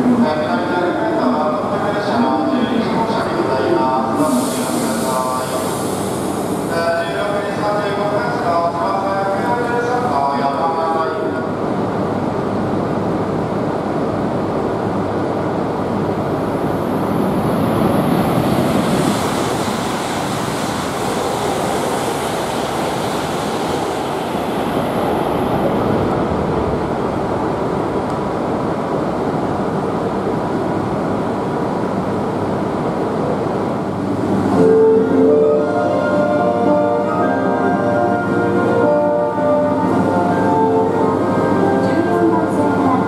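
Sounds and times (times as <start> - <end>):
train rushing rumble: 0.0 - 43.0
high hiss: 4.1 - 7.1.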